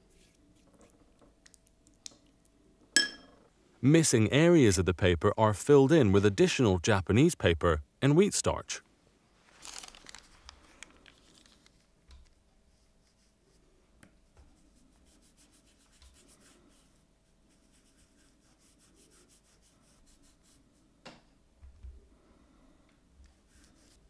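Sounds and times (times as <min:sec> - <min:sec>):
rubbing and scratching on paper: 0:00.0 - 0:01.1, 0:09.6 - 0:13.7, 0:14.3 - 0:20.9, 0:23.2 - 0:24.0.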